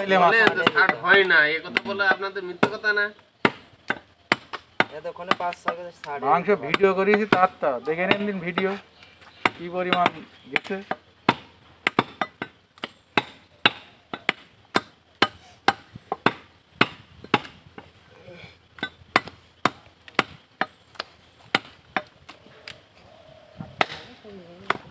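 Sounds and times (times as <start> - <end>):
cleaver chopping on wooden block: 3.4 - 5.8, 9.4 - 17.6, 18.8 - 22.1.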